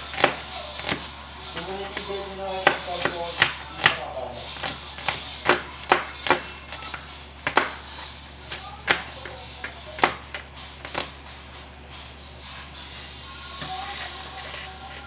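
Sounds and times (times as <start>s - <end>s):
knife chopping on cutting board: 0.1s - 1.1s, 1.9s - 4.0s, 4.6s - 6.5s, 7.4s - 7.8s.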